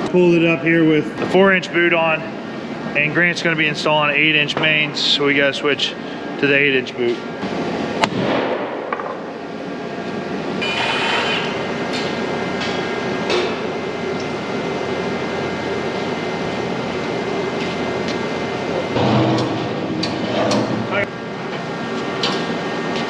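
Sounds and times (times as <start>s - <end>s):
steady machine hum: 0.0s - 23.0s
metal clanks and knocks: 18.8s - 20.9s.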